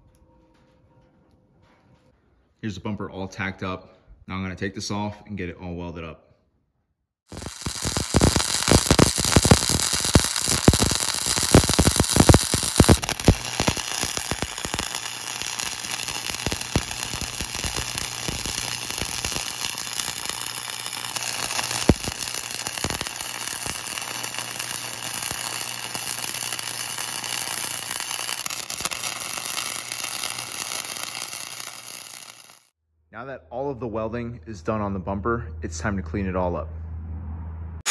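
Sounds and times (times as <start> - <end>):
arc welding crackling: 7.3 - 32.7.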